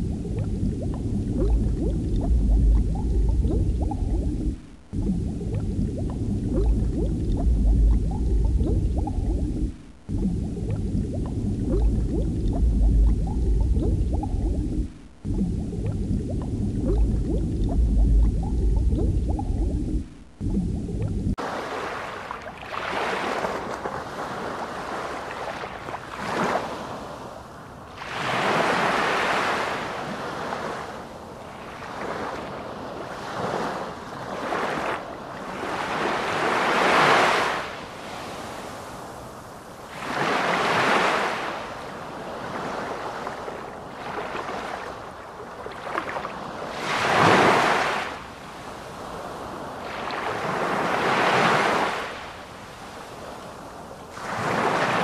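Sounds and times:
waves washing over shore: 21.4 - 55.0.

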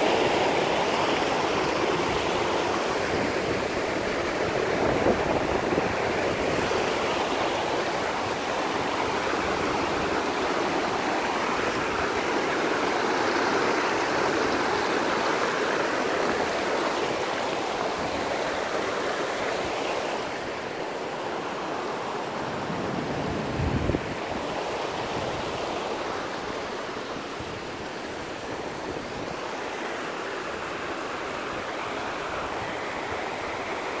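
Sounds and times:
river rushing over boulders: 0.0 - 34.0.

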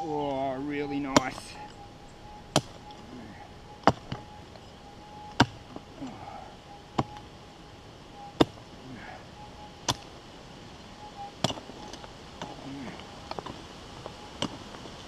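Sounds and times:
pick striking hard ground: 2.5 - 2.8.

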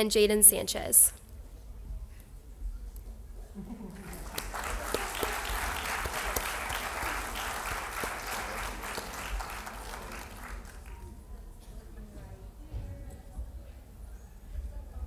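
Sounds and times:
audience applauding: 3.9 - 11.2.

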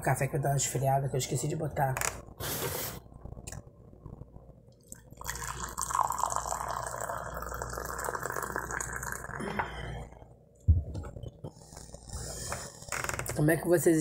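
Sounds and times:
coffee pouring into mug: 5.0 - 9.8.

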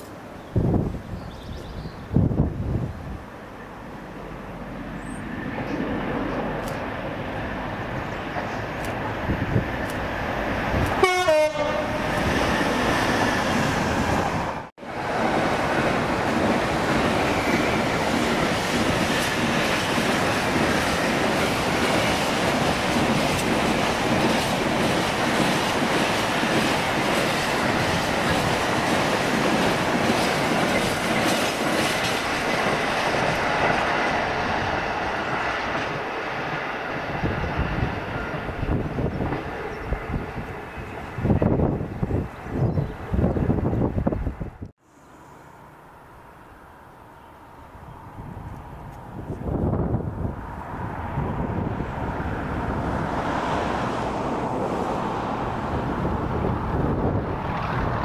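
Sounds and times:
train wagons rumbling on rails: 0.0 - 44.7
locomotive passing: 1.6 - 58.0.

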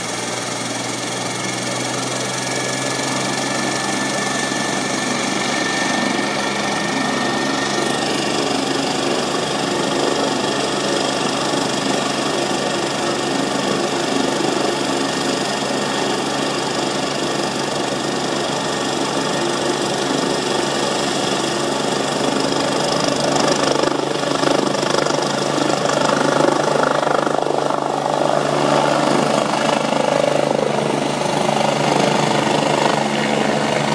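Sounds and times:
mowing machine engine running: 30.6 - 33.9.

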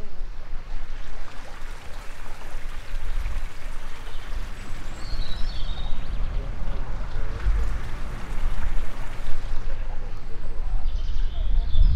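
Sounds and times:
wind buffeting microphone: 0.0 - 11.9
bird chirping: 3.8 - 11.9.

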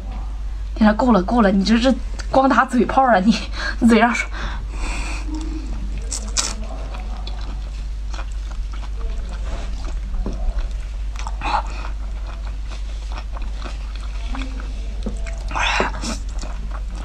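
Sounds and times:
steady low hum: 0.0 - 17.0
close-miked chewing and biting: 5.3 - 17.0.

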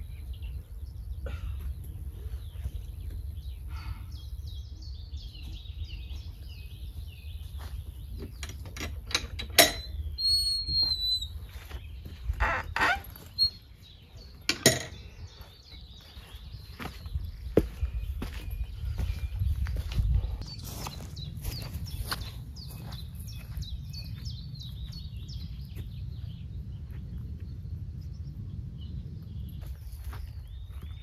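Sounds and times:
small birds chirping: 0.0 - 31.0
gate latch clanking: 8.4 - 9.9
footsteps on dry leaves: 16.0 - 24.1.

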